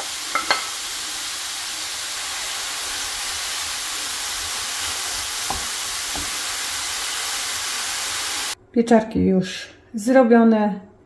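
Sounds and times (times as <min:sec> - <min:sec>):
mushrooms sizzling in a pan: 0:00.0 - 0:08.6
wooden spatula knocking on pan: 0:05.4 - 0:06.4.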